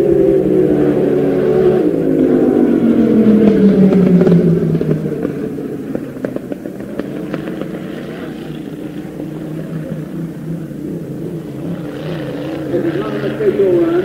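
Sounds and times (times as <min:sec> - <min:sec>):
racing boat engine at high revs: 0:00.0 - 0:14.0.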